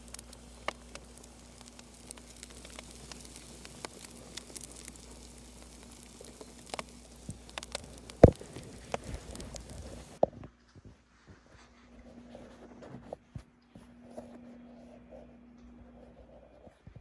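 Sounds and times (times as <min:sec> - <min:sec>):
small clicks: 0:00.0 - 0:10.2
fireplace crackling on tv: 0:00.0 - 0:13.1.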